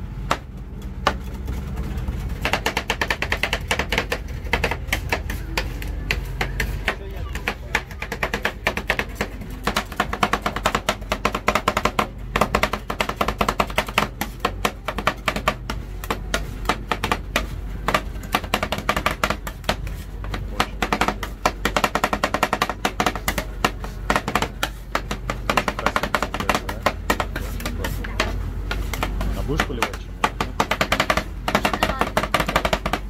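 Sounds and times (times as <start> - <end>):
metal spatulas chopping on steel: 25.1 - 33.0.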